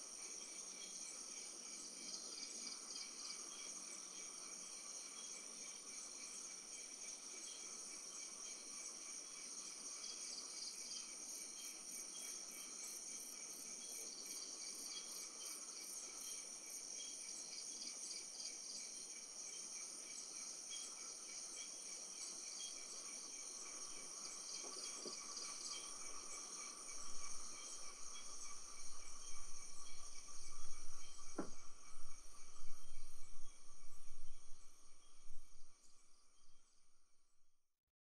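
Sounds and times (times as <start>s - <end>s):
crickets trilling: 0.0s - 36.8s
short insect chirps: 19.5s - 37.4s.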